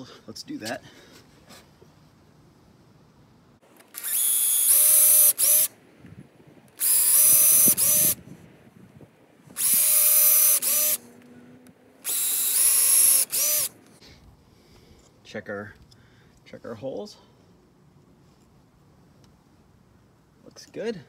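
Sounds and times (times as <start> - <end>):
cordless drill drilling wood: 3.9 - 5.7, 6.8 - 8.2, 9.5 - 11.0, 12.0 - 13.8.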